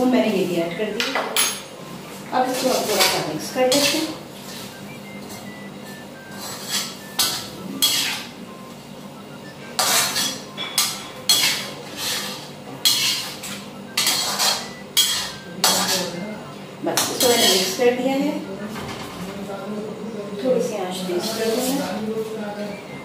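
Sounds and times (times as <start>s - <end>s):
spatula scraping a metal wok: 2.5s - 4.8s, 6.3s - 8.3s, 9.8s - 16.1s.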